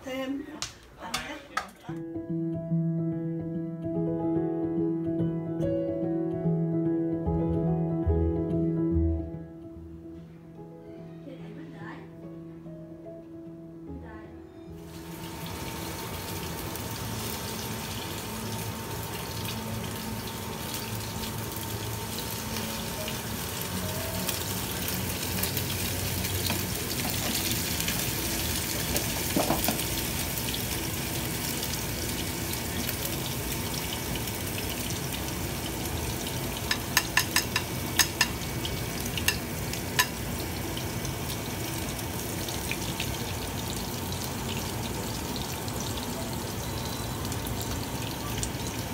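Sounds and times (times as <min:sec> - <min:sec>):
patties sizzling in a pan: 0:14.8 - 0:48.9.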